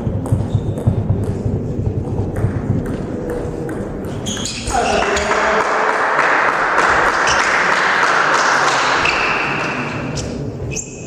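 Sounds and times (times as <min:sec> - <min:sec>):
table tennis ball pinging: 0:00.0 - 0:04.7
hall background noise: 0:00.0 - 0:11.0.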